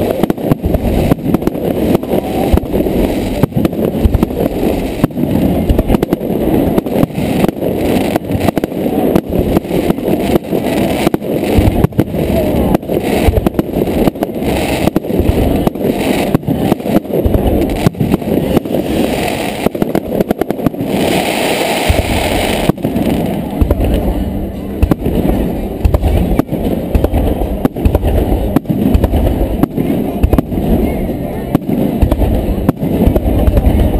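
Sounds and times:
fireworks bangs and booms: 0.0s - 33.9s.

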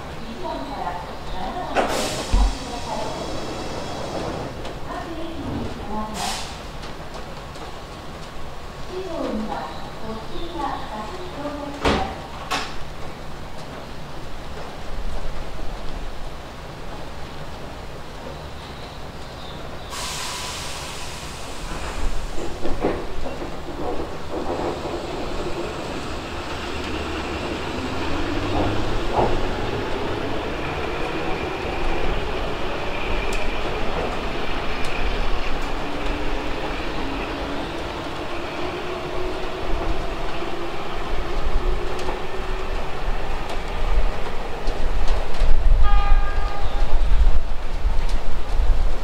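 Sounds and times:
electric train accelerating over rails: 0.0s - 10.0s, 12.3s - 49.0s
train horn blast: 45.8s - 46.9s.

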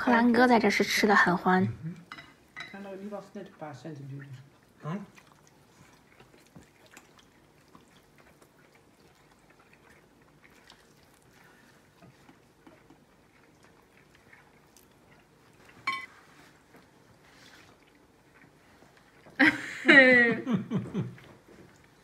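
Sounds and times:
people chewing: 4.1s - 19.8s, 20.5s - 22.0s.

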